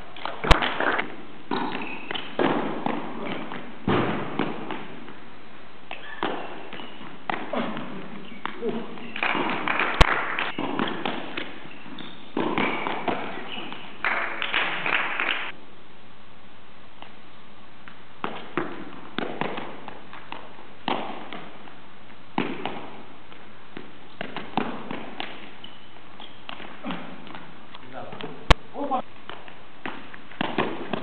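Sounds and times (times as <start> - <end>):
shoes landing on court: 0.2 - 5.2, 5.9 - 15.5, 17.9 - 21.8, 22.4 - 31.0.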